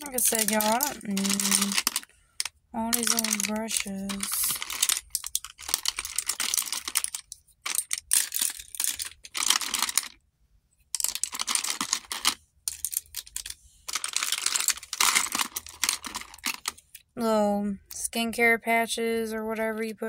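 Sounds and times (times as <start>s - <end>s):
makeup brushes clattering: 0.0s - 10.2s, 11.0s - 16.8s.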